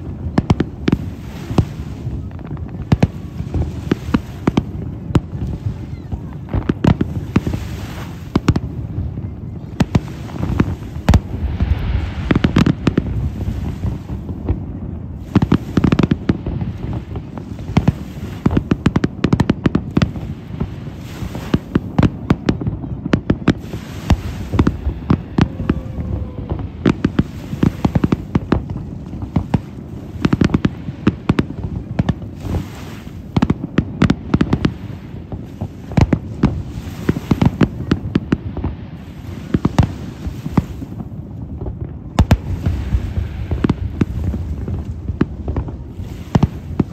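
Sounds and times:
low rumble: 10.6s - 17.1s, 23.6s - 29.3s.

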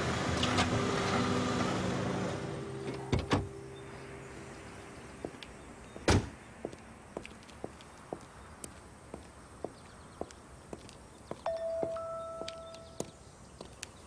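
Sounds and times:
car door slamming shut: 2.9s - 3.5s, 6.0s - 6.4s
footsteps on pavement: 5.0s - 14.0s.

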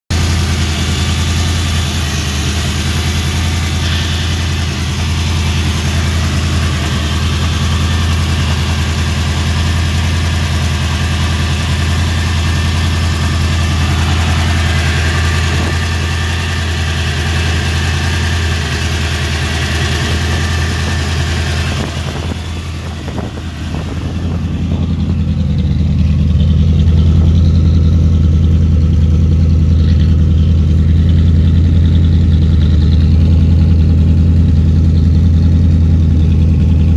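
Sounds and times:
car engine idling: 0.0s - 36.9s.

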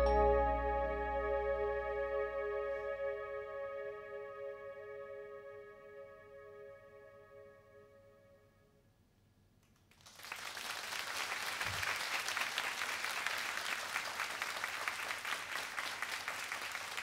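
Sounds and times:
audience applause: 9.9s - 17.0s.

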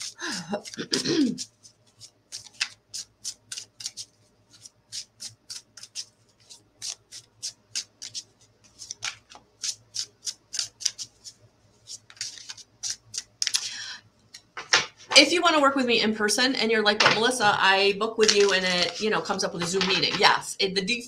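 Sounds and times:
cards being shuffled: 0.0s - 13.7s, 18.2s - 20.4s.

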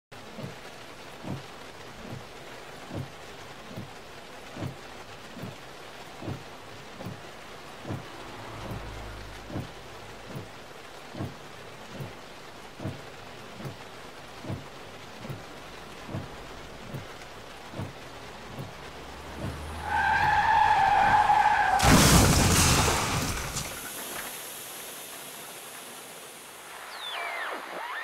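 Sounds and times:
rain hiss: 0.2s - 28.0s
low repeating thump: 16.0s - 17.1s
thunder rumble: 20.9s - 23.9s.

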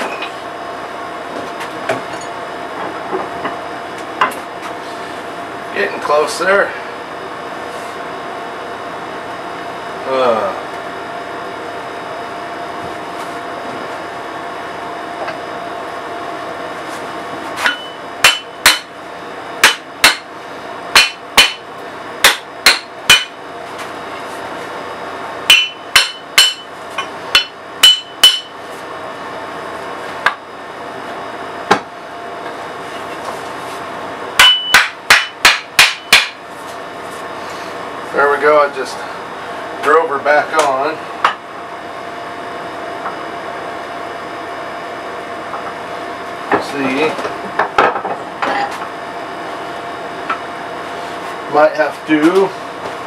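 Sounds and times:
air conditioner humming: 0.0s - 53.0s
hammer striking metal axe head: 17.6s - 18.9s, 19.6s - 20.3s, 20.9s - 21.6s, 22.2s - 23.4s, 25.5s - 26.7s, 27.3s - 28.5s, 34.4s - 36.4s.

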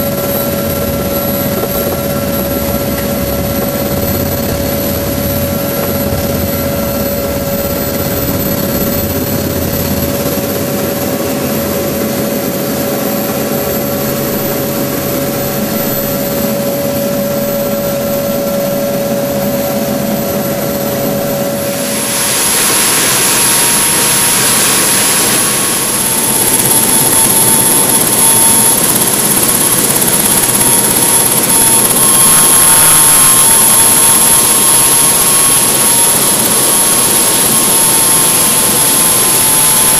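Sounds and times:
helicopter engines and rotors: 0.0s - 39.9s
high whine: 0.0s - 39.9s.

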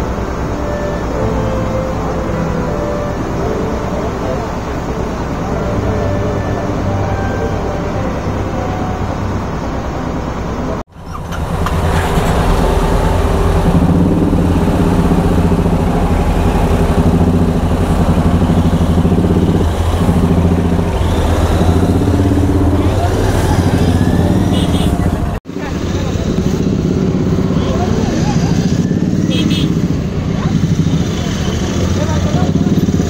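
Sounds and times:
ferry engine running: 0.0s - 33.0s
motorcycle engine idling: 0.0s - 33.0s.

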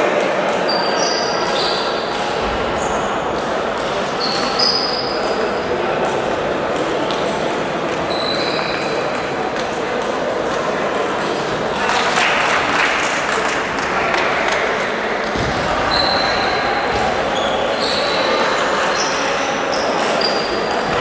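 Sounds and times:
murmur of voices: 0.0s - 21.0s
table tennis balls clicking: 3.7s - 11.8s.

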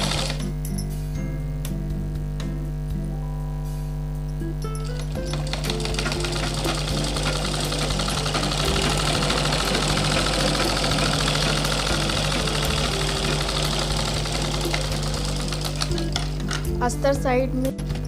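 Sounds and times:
sewing machine running: 0.0s - 0.5s, 4.9s - 16.7s.

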